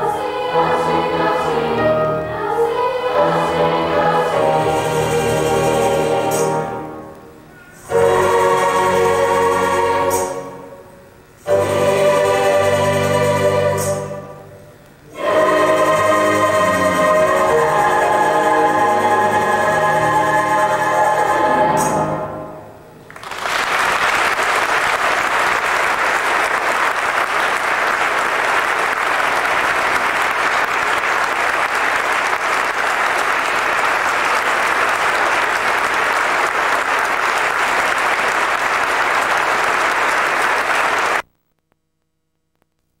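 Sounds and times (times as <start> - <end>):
choir singing a chord: 0.0 - 7.2, 7.8 - 22.8
audience applause: 23.1 - 41.3.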